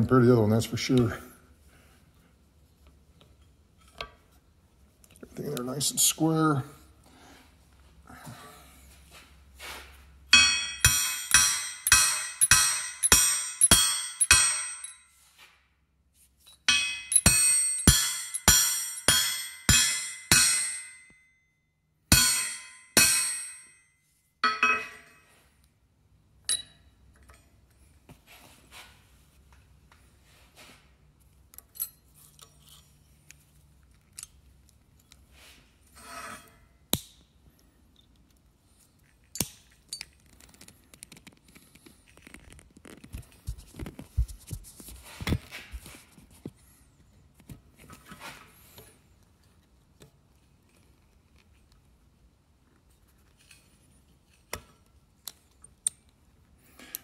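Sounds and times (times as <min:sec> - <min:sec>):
metallic tool clicks and scrapes: 0:10.4 - 0:15.0, 0:16.5 - 0:20.5.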